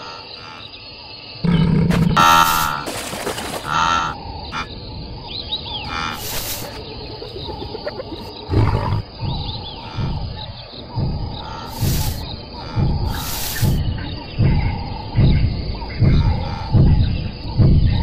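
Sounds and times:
cartoon lionesses growling: 1.4 - 2.9, 6.1 - 10.4
faint chirps: 4.0 - 18.0.

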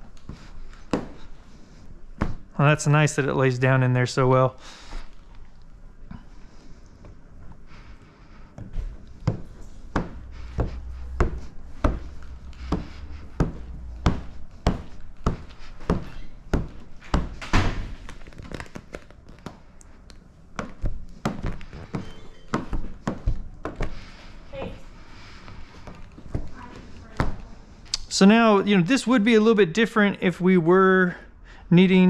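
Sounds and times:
squeegee strokes knocking: 8.2 - 27.5.

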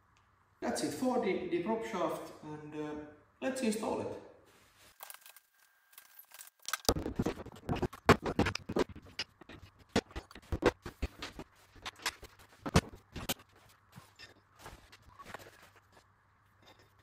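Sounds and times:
metallic clicks knocks and scrapes: 7.0 - 14.4.

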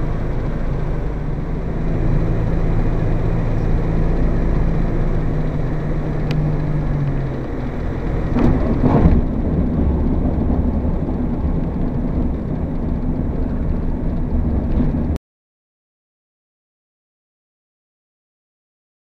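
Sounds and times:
light aircraft engine at low power: 0.0 - 15.2
wind rumble: 0.0 - 15.2
wheels rolling on runway: 2.0 - 15.2.

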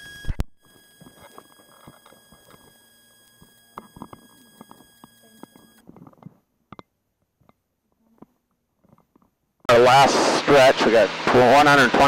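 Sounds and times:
high electronic whine: 9.7 - 12.0.

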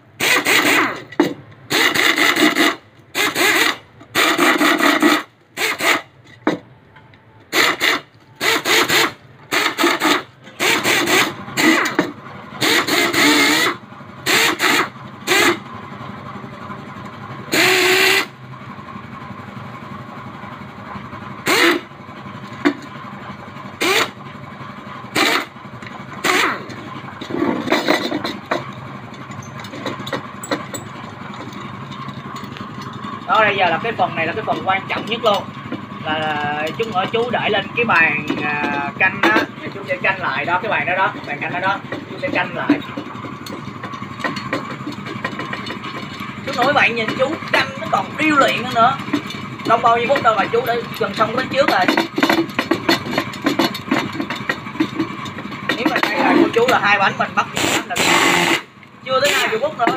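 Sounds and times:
power driver whirring bursts: 0.2 - 1.1, 1.7 - 6.2, 7.5 - 12.0, 12.6 - 15.7, 17.5 - 18.4, 21.4 - 21.9, 23.8 - 24.3, 25.0 - 26.9, 57.5 - 59.6.

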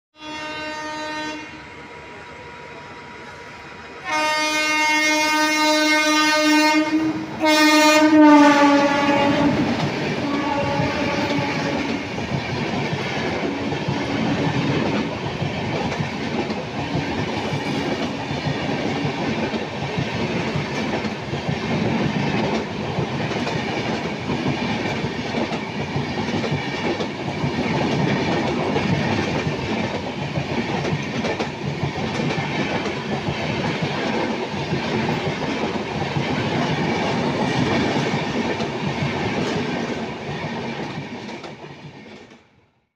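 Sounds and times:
locomotive horn blasts: 0.2 - 1.6, 4.0 - 12.0
train coaches rushing past: 0.2 - 42.5
train wheel clatter: 8.4 - 42.4.

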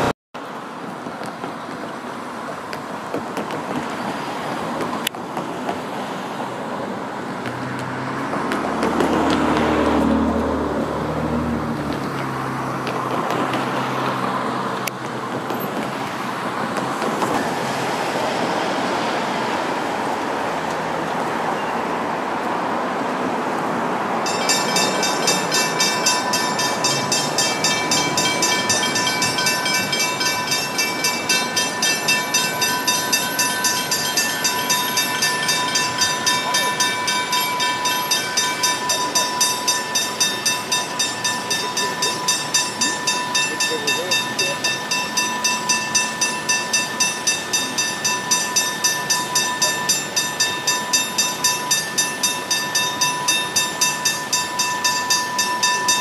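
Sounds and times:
steady rushing noise: 0.0 - 56.0
level crossing warning bell: 24.2 - 56.0.

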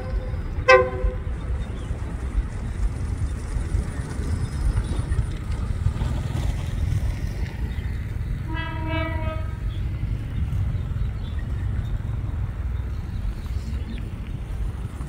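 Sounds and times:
railcar horn blast: 0.0 - 1.5, 8.4 - 9.8
diesel railcars rumbling: 0.0 - 15.0.

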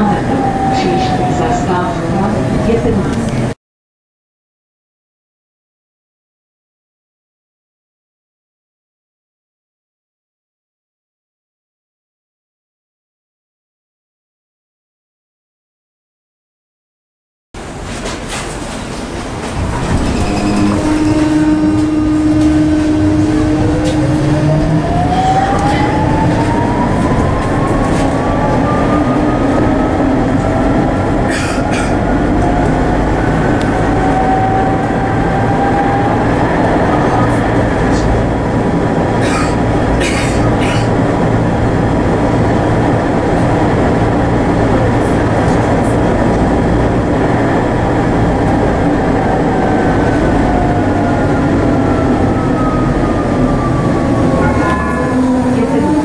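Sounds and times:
tram wheels rumbling on rail: 0.0 - 3.6, 17.6 - 56.0.

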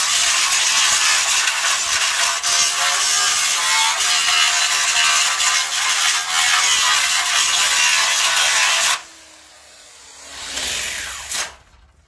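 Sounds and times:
angle grinder wire brush grinding metal: 0.0 - 11.6
motor winding down whine: 9.0 - 12.0.

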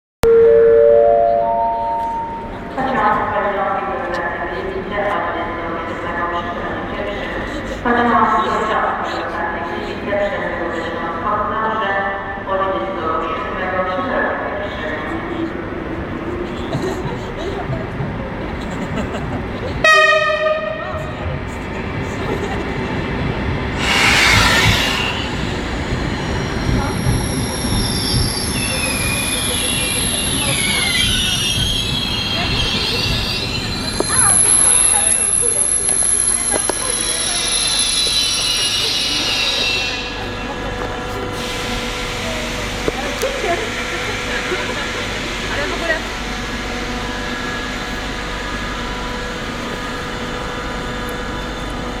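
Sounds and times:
rush of passing train: 0.4 - 52.0
train wheels rumbling on rail: 14.8 - 52.0
high wheel squeal: 23.8 - 40.3.

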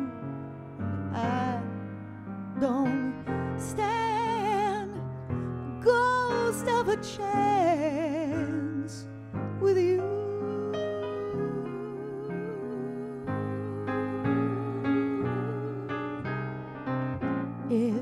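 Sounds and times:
grand piano accompaniment: 0.0 - 18.0
woman singing with vibrato: 5.8 - 9.0, 9.6 - 16.6, 17.7 - 18.0.

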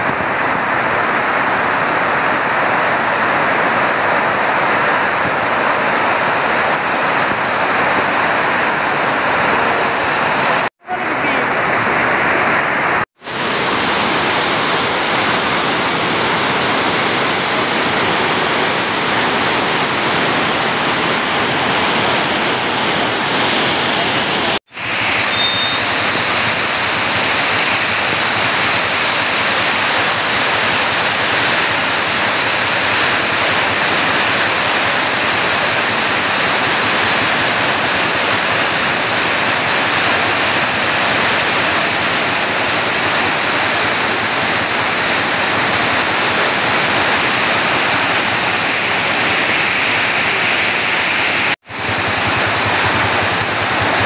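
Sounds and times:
floodwater rushing: 0.0 - 54.0.

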